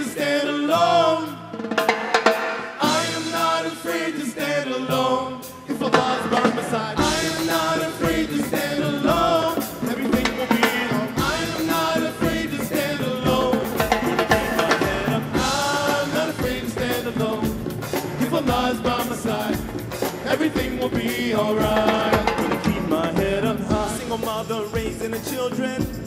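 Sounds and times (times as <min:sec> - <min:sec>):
men singing together: 0:00.0 - 0:01.6, 0:02.8 - 0:26.0
drum kit: 0:00.0 - 0:26.0
hand percussion: 0:05.6 - 0:26.0.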